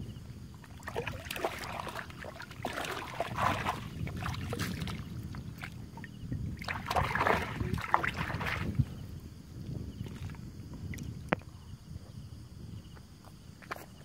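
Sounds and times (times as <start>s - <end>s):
steady low rumble: 0.0s - 13.0s
muddy water splashing: 0.6s - 9.0s.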